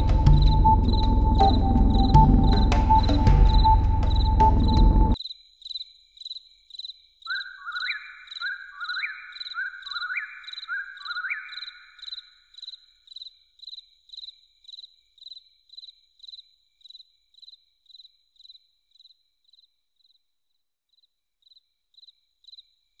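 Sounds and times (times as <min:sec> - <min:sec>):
cricket chirping: 0:00.0 - 0:23.0.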